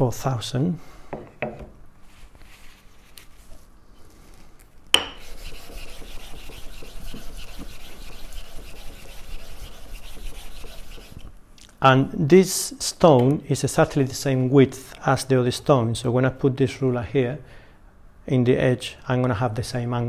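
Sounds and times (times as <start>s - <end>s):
block scrubbing on wet stone: 5.2s - 11.3s.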